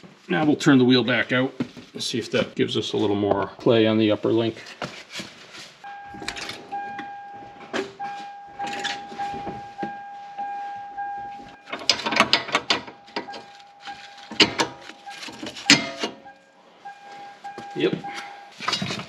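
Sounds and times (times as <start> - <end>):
metallic clicks and clanks: 11.4 - 16.4.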